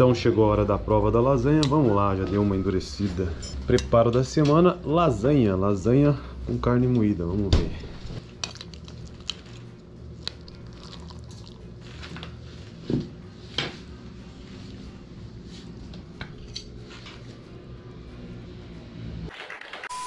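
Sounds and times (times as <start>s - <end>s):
steady low hum: 4.6s - 19.3s.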